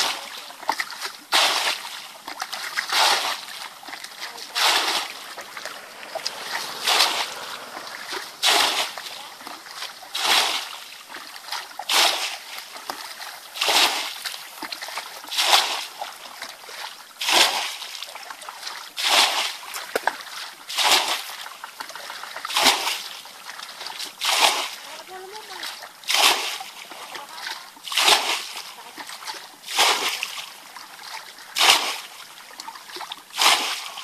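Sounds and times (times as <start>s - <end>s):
water sloshing: 0.0s - 34.0s
water splashing from bucket: 0.0s - 34.0s.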